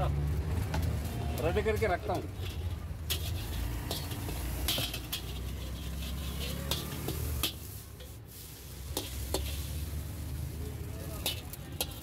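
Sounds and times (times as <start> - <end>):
metal spatula scraping steel pan: 2.0 - 10.0, 11.1 - 12.0.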